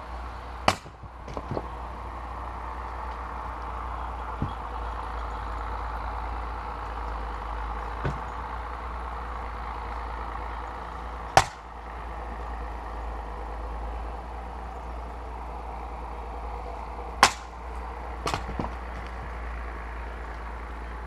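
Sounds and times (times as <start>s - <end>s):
maul splitting log crack: 0.2s - 5.4s, 6.6s - 8.6s, 10.3s - 12.5s, 16.3s - 20.5s
soft wooden knocks: 0.7s - 1.7s, 4.3s - 4.7s, 8.0s - 8.4s, 18.2s - 19.3s.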